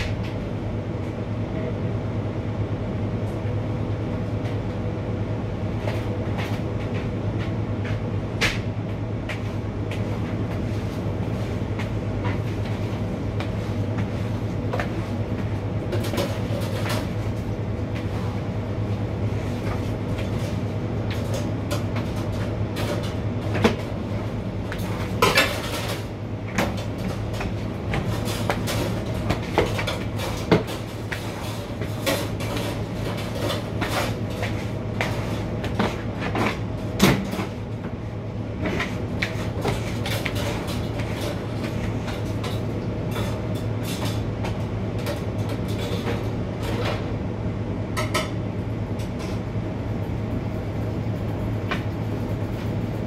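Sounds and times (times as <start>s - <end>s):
low hum of kitchen equipment: 0.0s - 53.0s
floor cleaning knocks and clatters: 26.6s - 37.6s.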